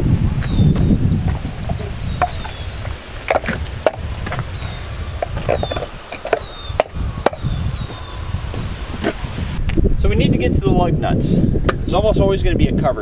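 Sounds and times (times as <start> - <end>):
plastic wheel chocks knocking: 3.3 - 4.4.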